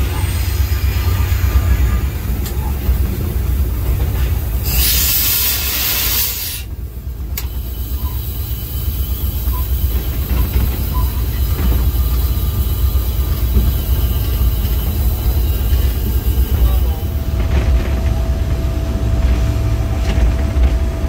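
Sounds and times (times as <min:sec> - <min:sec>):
diesel locomotive rumbling: 0:00.0 - 0:21.0
loud hiss: 0:04.6 - 0:06.7.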